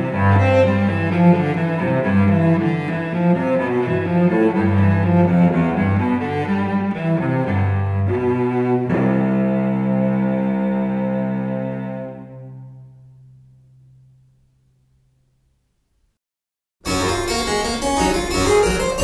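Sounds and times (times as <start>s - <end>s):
instrumental background music: 16.8s - 19.0s.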